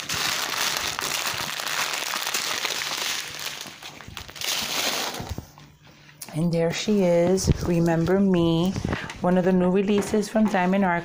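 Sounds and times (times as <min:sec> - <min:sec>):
plastic bags crinkling: 0:00.0 - 0:05.6.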